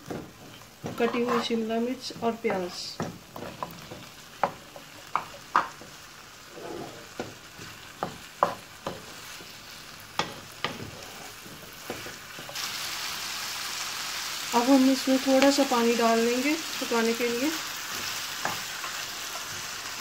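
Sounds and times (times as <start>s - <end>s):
spatula scraping frying pan: 0.0s - 5.4s, 6.4s - 9.6s, 10.2s - 12.7s
sauce sizzling: 0.0s - 20.0s.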